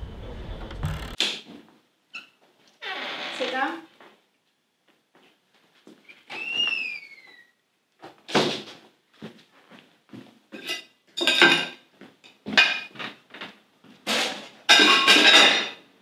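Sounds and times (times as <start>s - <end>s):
door squeaking shut: 0.4s - 1.2s, 2.2s - 3.5s, 6.1s - 7.6s
knocks and clinks: 14.7s - 15.8s.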